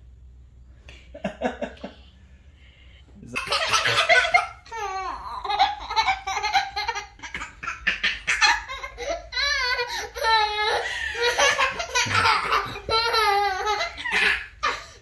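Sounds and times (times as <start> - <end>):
young child laughing: 3.3 - 15.0.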